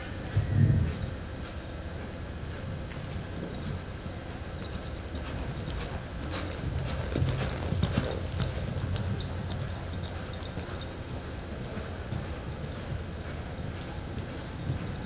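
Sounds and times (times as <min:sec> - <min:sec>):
horse hoofbeats on dirt: 0:00.0 - 0:15.0.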